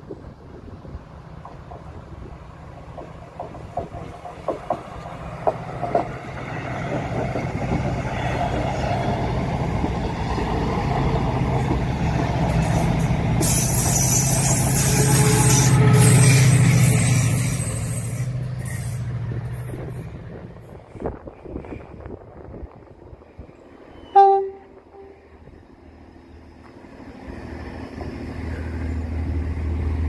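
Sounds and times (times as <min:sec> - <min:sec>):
diesel locomotive engine hum: 0:00.0 - 0:30.0
train wheels clicking over track: 0:01.2 - 0:21.8
hiss: 0:12.6 - 0:15.1.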